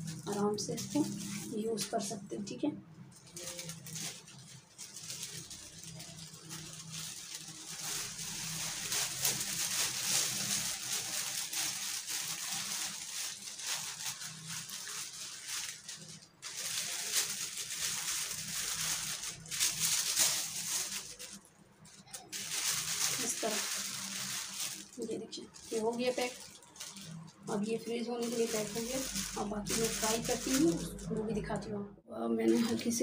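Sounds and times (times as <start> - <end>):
plastic bag crinkling: 0.0 - 31.6, 32.4 - 33.0.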